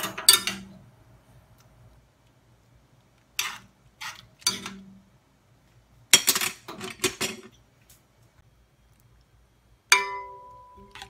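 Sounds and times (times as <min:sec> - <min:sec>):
spoon scraping a metal saucepan: 0:03.4 - 0:04.7.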